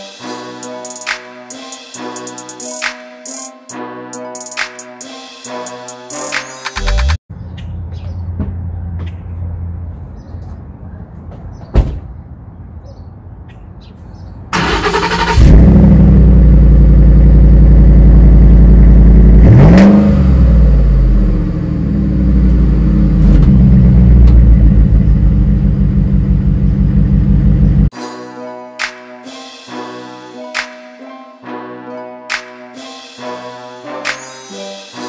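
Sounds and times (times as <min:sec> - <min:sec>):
car engine idling: 0:14.6 - 0:19.4, 0:20.6 - 0:27.9
engine revving: 0:14.6 - 0:27.9.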